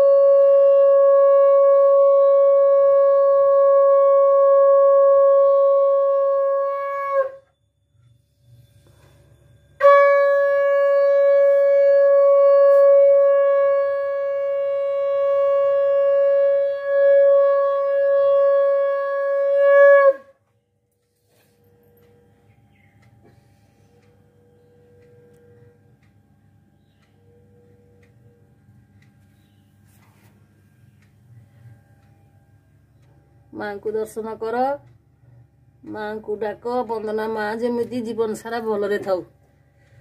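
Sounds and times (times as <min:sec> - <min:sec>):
conch shell blasts: 0:00.0 - 0:07.6, 0:09.7 - 0:20.4.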